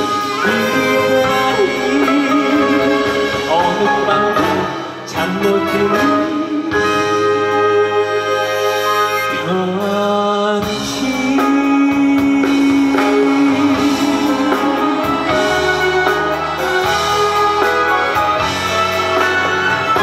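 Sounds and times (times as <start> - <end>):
man singing: 0.0 - 7.7, 9.3 - 16.1
band with guitar keyboards drums: 0.0 - 20.0.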